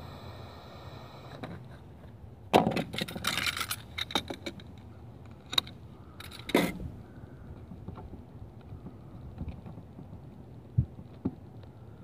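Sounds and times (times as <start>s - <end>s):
small hand tools clicking and clinking: 2.8s - 6.8s.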